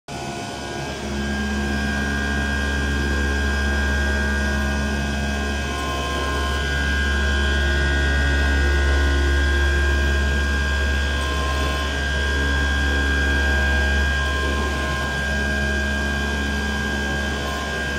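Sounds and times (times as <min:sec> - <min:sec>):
cutting machine hum: 0:00.1 - 0:17.9
high whine: 0:00.1 - 0:17.9.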